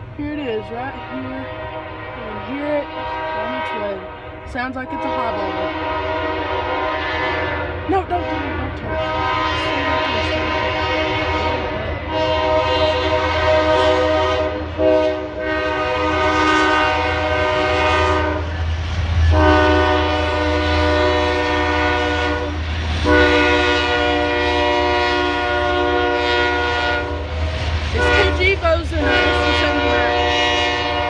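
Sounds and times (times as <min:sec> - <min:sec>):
steady low rumble: 0:00.0 - 0:06.0, 0:07.5 - 0:13.8
train air horn blasts: 0:00.4 - 0:31.0.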